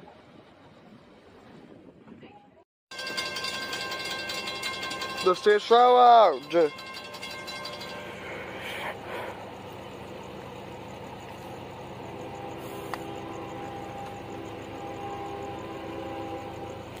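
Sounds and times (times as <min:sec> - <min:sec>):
engine rumble: 0:00.0 - 0:17.0
faint steady tones: 0:02.9 - 0:17.0.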